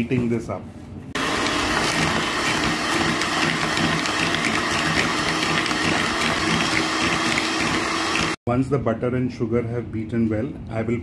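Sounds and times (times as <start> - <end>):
electric hand mixer running: 1.2 - 8.4.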